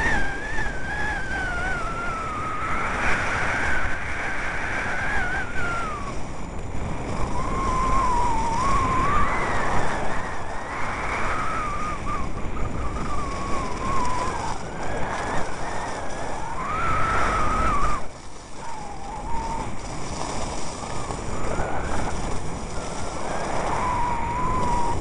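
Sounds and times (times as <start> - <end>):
wind on microphone: 0.0 - 25.0
skis on packed snow: 4.8 - 25.0
whistle-like tone: 7.2 - 14.6.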